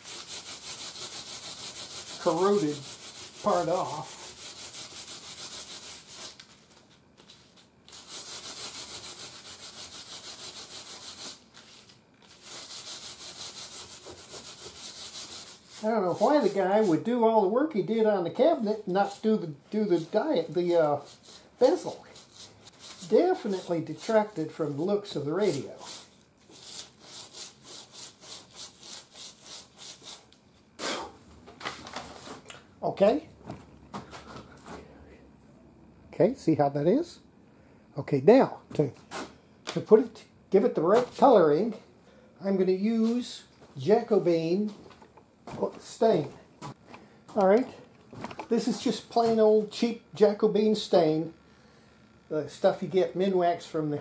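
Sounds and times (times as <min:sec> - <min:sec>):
steel wool scrubbing metal: 0:00.0 - 0:06.3, 0:12.4 - 0:17.1.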